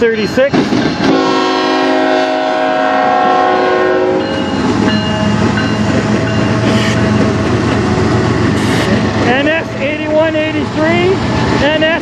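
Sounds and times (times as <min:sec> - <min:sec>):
train wheels rumbling: 0:00.0 - 0:12.0
locomotive engine drone: 0:00.8 - 0:12.0
locomotive horn blast: 0:01.1 - 0:04.4, 0:06.6 - 0:07.0, 0:08.6 - 0:09.0.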